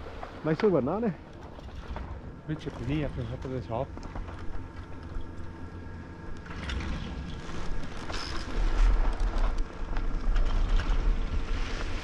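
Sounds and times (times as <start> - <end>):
wind rumbling on microphone: 0.0 - 12.0
skis scraping on snow: 7.2 - 12.0.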